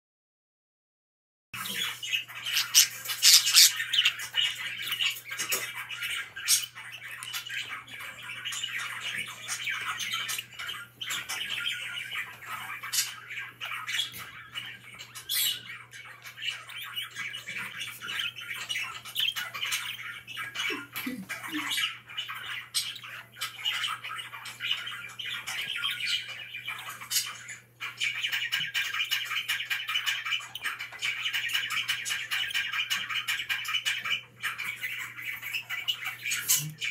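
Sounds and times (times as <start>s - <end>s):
budgerigars warbling and chattering: 1.6s - 36.9s
sharp bird chirps and squawks: 1.6s - 36.9s.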